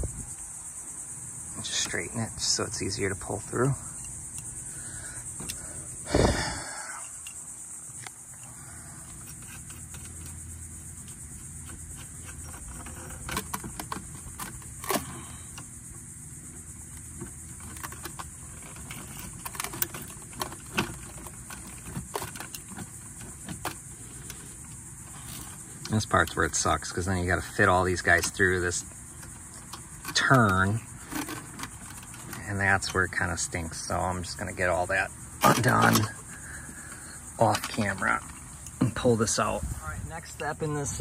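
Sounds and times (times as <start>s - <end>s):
crickets buzzing: 0.0s - 41.0s.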